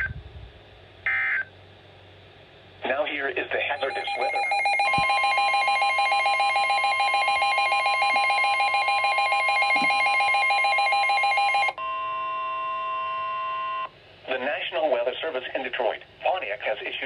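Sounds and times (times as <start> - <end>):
steady warning tone: 3.6 - 14.4
rapid pulsing alarm beeps: 3.7 - 13.9.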